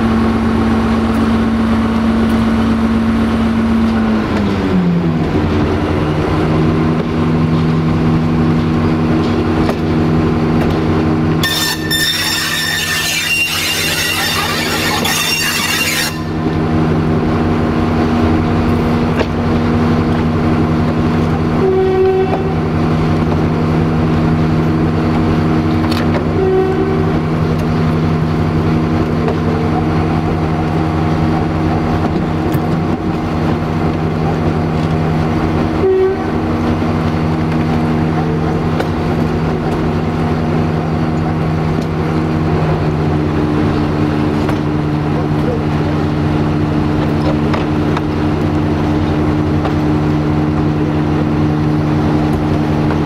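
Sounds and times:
locomotive diesel engine running: 0.0s - 53.0s
short horn toots: 11.4s - 16.5s, 35.8s - 36.4s
high wheel squeal: 11.4s - 16.7s.

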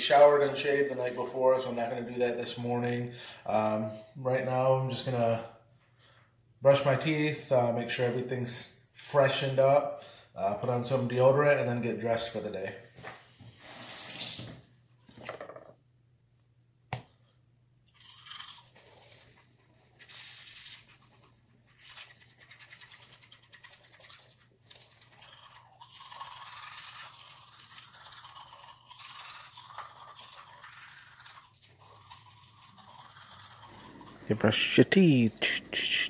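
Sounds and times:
toothbrush scrubbing teeth: 18.0s - 36.0s.

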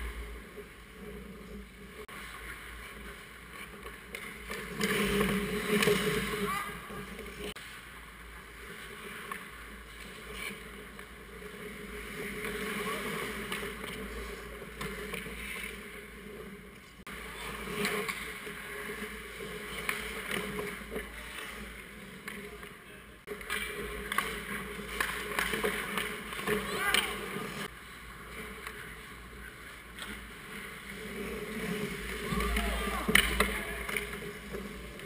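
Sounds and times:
skate blades scraping on ice: 0.0s - 35.0s
hockey sticks and puck clicking: 3.5s - 7.5s, 12.2s - 15.9s, 17.6s - 27.7s, 29.8s - 35.0s
faint shouts from players: 32.2s - 33.9s.

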